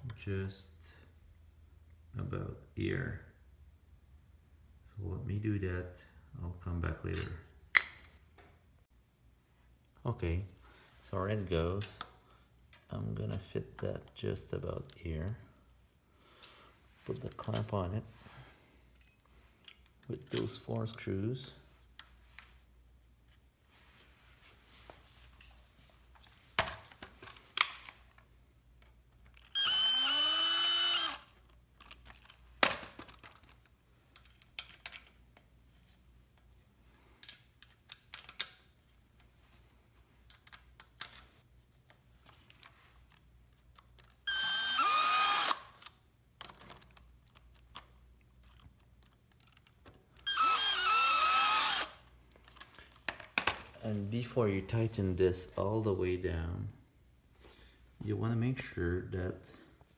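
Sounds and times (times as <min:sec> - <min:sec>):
screws and parts clicking: 0:28.8 - 0:32.4, 0:40.2 - 0:41.3, 0:42.5 - 0:53.1
power screwdriver whining: 0:29.4 - 0:31.3, 0:44.3 - 0:45.8, 0:50.2 - 0:52.0.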